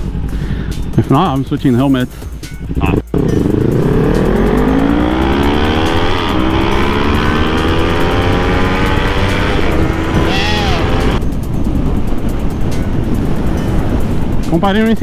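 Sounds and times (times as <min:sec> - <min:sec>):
motorcycle engine revving: 0:03.1 - 0:11.2.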